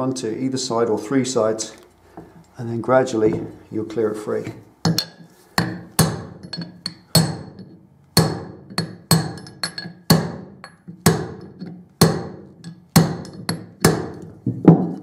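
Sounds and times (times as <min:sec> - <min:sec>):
hammer striking steel: 0:04.9 - 0:14.2.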